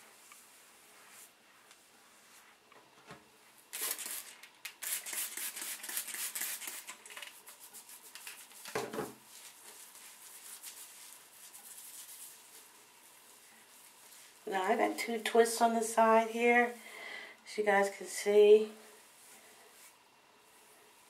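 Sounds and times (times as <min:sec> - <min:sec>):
hands rubbing hair: 0:03.8 - 0:14.4.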